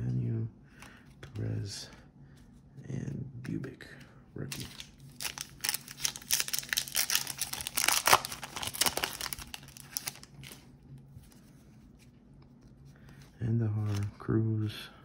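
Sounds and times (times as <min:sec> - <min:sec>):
wrapper crinkling and tearing: 0:04.5 - 0:10.7.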